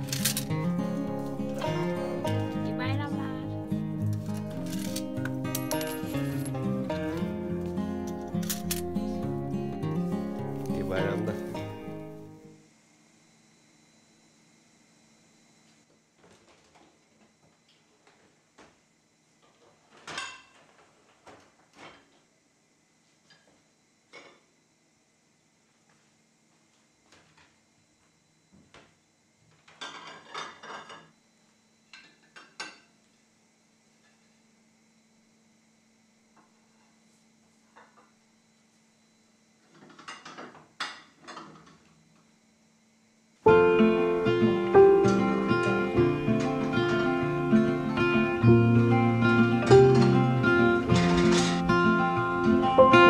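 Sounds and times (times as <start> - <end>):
acoustic guitar and piano music: 0.0 - 12.5, 43.5 - 53.0
dishes clinking: 20.0 - 20.6, 29.8 - 31.1
dishwasher rack rolling out: 48.9 - 53.0.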